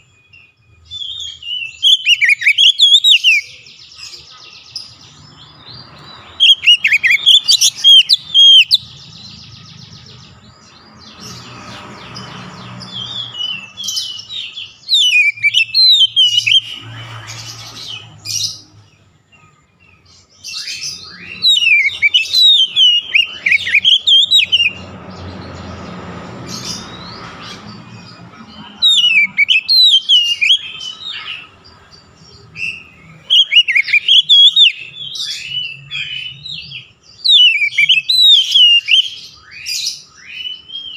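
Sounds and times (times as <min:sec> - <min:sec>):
bird singing whistled phrases: 0:00.0 - 0:03.7, 0:06.4 - 0:08.9, 0:13.0 - 0:16.9, 0:20.5 - 0:24.8, 0:28.8 - 0:31.5, 0:32.6 - 0:40.9.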